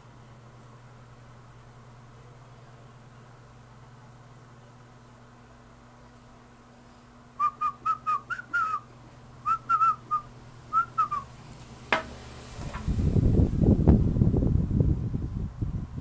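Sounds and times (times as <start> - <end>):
short whistled chirps: 7.4 - 8.9, 9.5 - 11.3.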